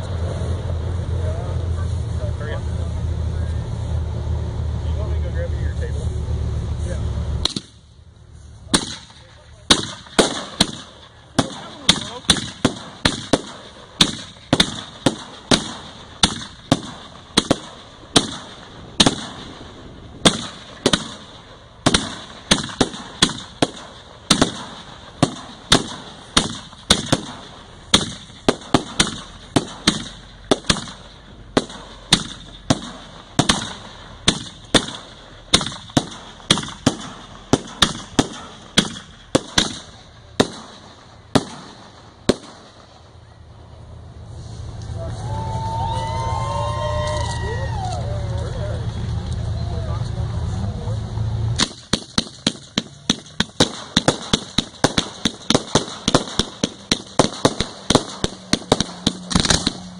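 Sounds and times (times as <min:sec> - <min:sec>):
fireworks bangs: 0:08.6 - 0:43.8, 0:51.5 - 0:59.9.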